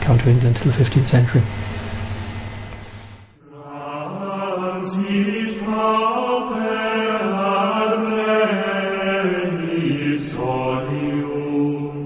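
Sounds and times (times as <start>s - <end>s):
chanting with long held notes: 3.4s - 12.0s.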